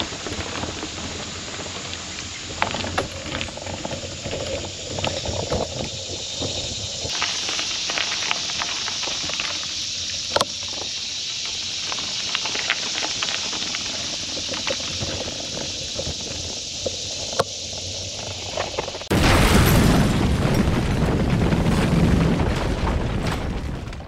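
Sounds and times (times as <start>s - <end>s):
bike clicks and rattles: 0.0s - 19.1s
tyres hissing on dirt: 0.0s - 19.1s.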